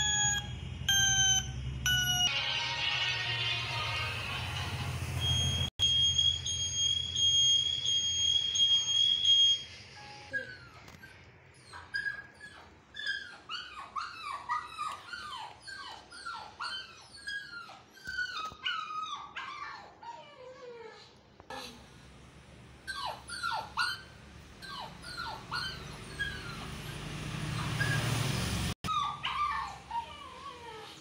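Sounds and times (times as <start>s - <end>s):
high electronic beeping tone: 0.0s - 2.3s, 5.2s - 10.4s
puppy whining: 7.2s - 21.2s, 22.9s - 28.1s, 28.8s - 31.0s.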